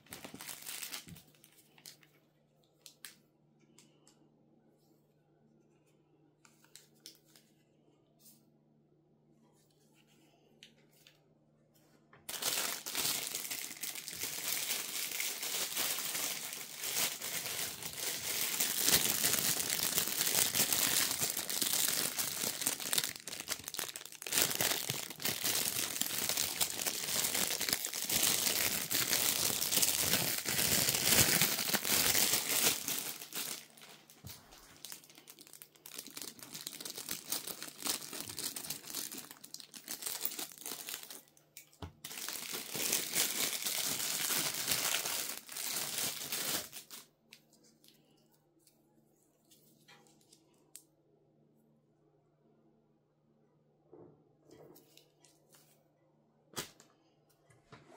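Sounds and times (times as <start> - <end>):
packaging wrap crinkling: 0.0 - 2.1, 12.3 - 47.1.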